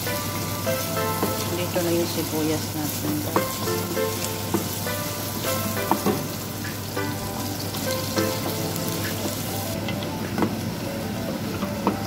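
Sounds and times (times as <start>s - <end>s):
onions sizzling in hot oil: 0.0s - 12.0s
wooden spatula knocking on pot: 2.9s - 6.4s.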